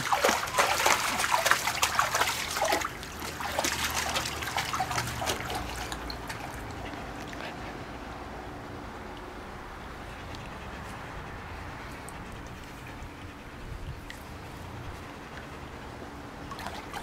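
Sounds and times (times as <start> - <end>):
dog wading through water: 0.0 - 7.9, 14.0 - 17.0
faint water trickle: 0.0 - 8.2, 16.5 - 17.0.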